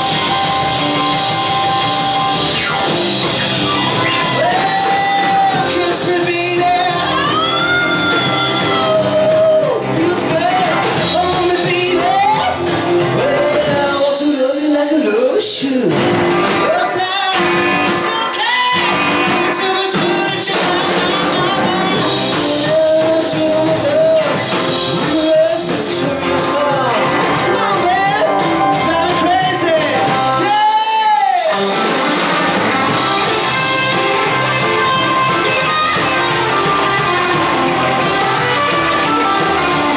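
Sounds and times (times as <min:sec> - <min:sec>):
live rock band playing: 0:00.0 - 0:39.9
man singing: 0:04.1 - 0:31.8.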